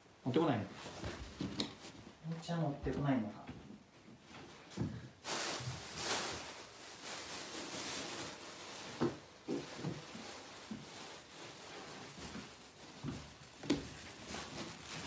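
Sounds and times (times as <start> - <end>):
rustling: 0.7 - 2.4, 4.3 - 15.0
socked footsteps on wooden floor: 0.9 - 5.2, 8.9 - 11.0, 12.0 - 15.0.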